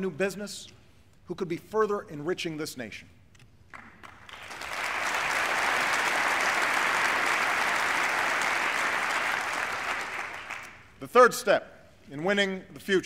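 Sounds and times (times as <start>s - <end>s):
crowd applause: 4.0s - 10.8s.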